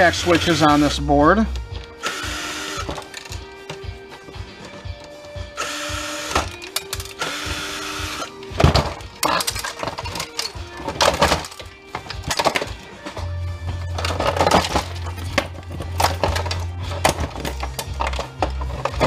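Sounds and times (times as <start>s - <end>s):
background music: 0.0s - 19.0s
cordless drill running: 2.0s - 3.0s, 5.6s - 6.5s, 7.2s - 8.3s
hard plastic clattering: 2.8s - 5.4s, 6.3s - 7.2s, 8.5s - 19.0s.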